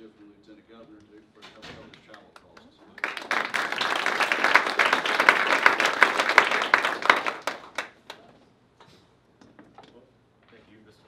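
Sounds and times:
audience applauding: 2.9 - 8.2.

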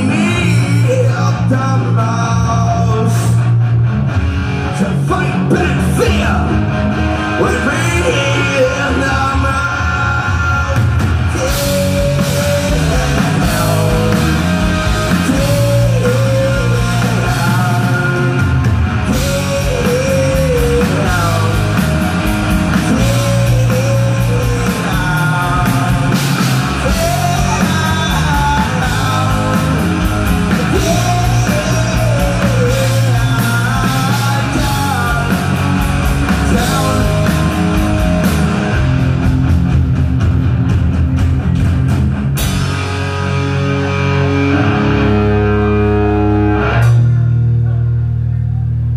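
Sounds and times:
person singing lead vocal: 0.0 - 3.6, 4.6 - 39.2
drum kit: 0.0 - 48.8
distorted electric guitars: 0.0 - 48.9.

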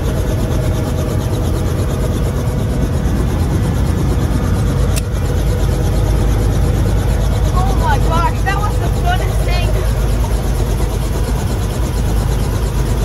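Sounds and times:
helicopter idling: 0.0 - 13.0
sharp click: 4.9 - 5.1.

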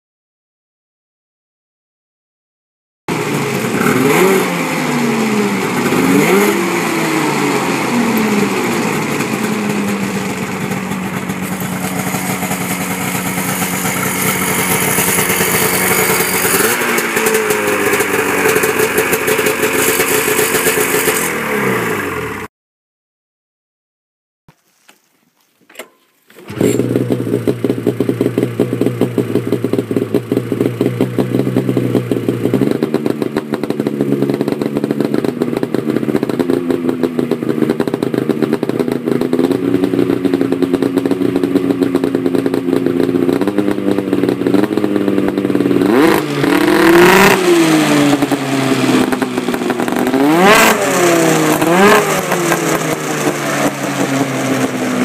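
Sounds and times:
engine revving blips: 3.1 - 22.5, 26.5 - 29.8, 45.4 - 54.8
snowmobile engine idling: 3.1 - 22.5, 26.5 - 55.0.

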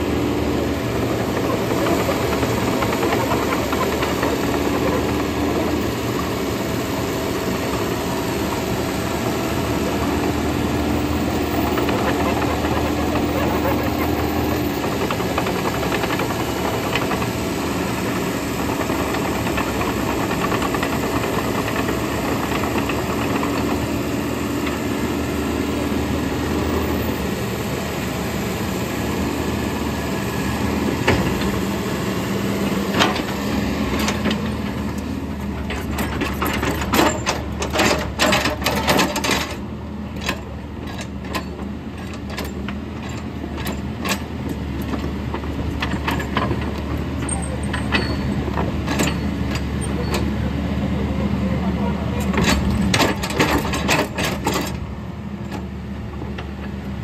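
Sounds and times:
excavator diesel engine running: 0.0 - 57.0
hydraulics working: 0.0 - 57.0
sharp metal clanks and knocks: 35.6 - 39.6, 45.8 - 50.3.

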